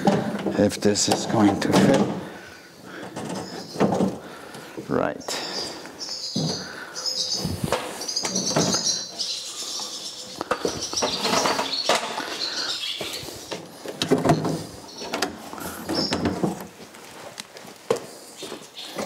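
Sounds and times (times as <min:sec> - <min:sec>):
parts knocking and clunking: 0:00.0 - 0:04.7, 0:06.3 - 0:06.8, 0:07.6 - 0:09.0, 0:10.4 - 0:12.3, 0:13.0 - 0:16.8
small birds chirping: 0:02.3 - 0:16.5, 0:18.2 - 0:19.0.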